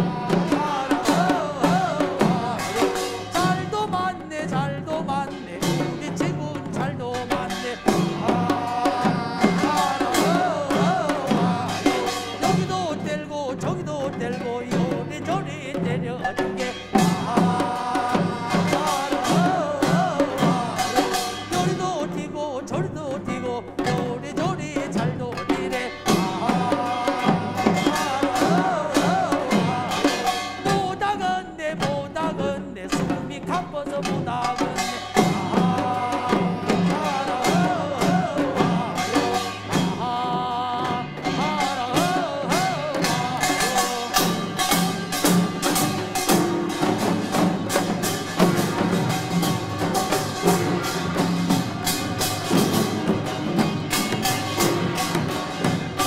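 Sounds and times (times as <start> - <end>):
hourglass drums: 0.0 - 22.4, 23.8 - 32.0, 34.1 - 56.0
barrel drums: 0.0 - 56.0
voices singing folk song: 0.0 - 56.0
small gongs: 34.6 - 56.0.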